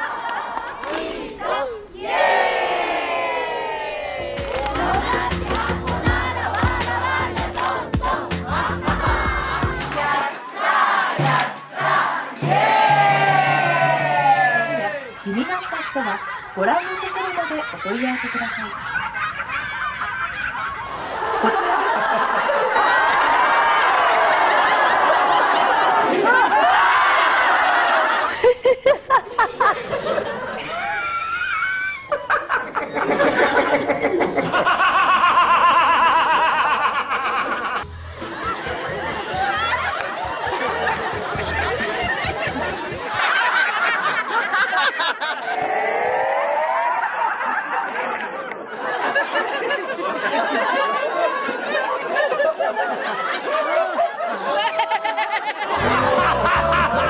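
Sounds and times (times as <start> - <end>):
group of people laughing: 4.2 - 57.0
hand claps: 4.3 - 8.4, 9.6 - 12.0.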